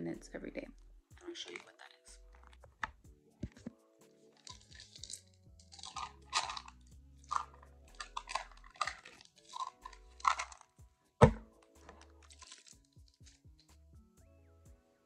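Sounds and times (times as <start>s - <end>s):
plastic bottle rustling clicks: 4.4s - 6.7s, 7.3s - 12.8s
sharp knock: 11.2s - 11.5s.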